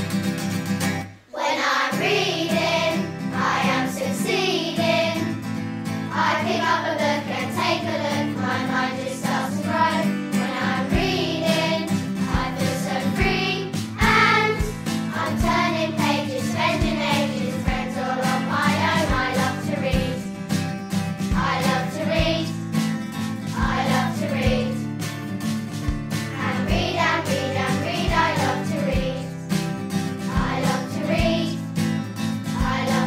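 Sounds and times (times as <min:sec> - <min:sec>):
children's song singing: 0:01.0 - 0:33.0
low drum beat: 0:14.0 - 0:15.9, 0:23.5 - 0:24.7, 0:25.8 - 0:29.2.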